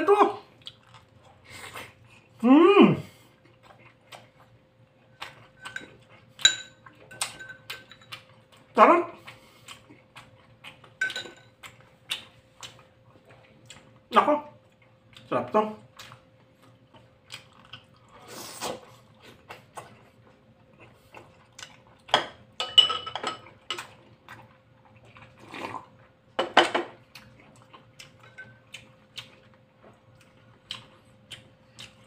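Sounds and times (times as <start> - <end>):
person chewing: 0.4 - 2.4, 3.0 - 22.6, 23.4 - 26.3, 27.0 - 32.0
metal spoon clinking on dishes: 5.6 - 8.2, 11.0 - 11.6, 22.1 - 23.8, 28.2 - 28.6.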